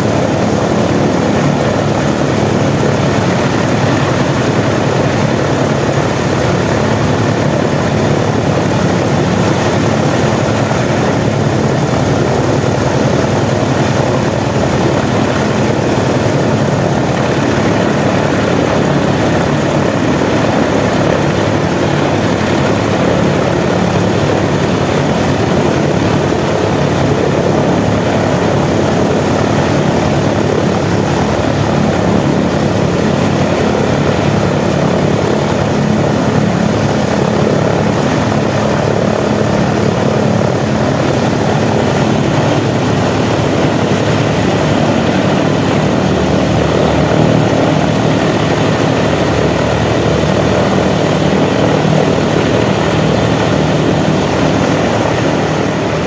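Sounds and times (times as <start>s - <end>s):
radial aircraft engine running: 0.0s - 56.0s.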